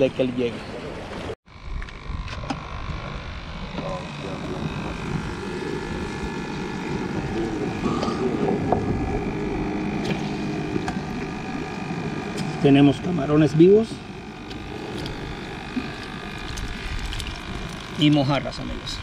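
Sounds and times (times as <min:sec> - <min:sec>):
motor hum with pitched tones: 0:00.0 - 0:19.0
wind rumbling on microphone: 0:01.5 - 0:12.6.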